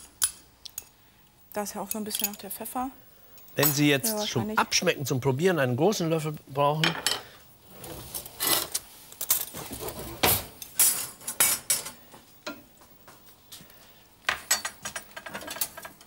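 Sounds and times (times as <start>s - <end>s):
kitchen utensils and pans clattering: 7.9s - 12.6s, 14.3s - 16.0s.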